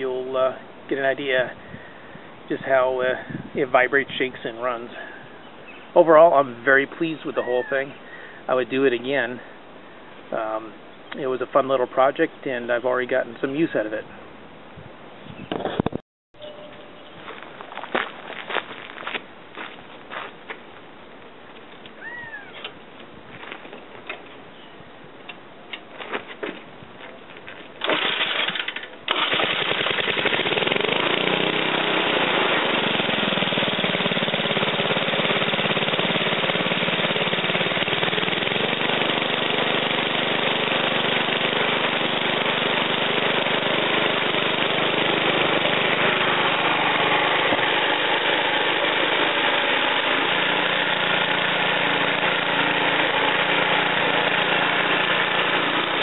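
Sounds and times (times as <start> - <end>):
generator engine running: 27.8 - 56.0.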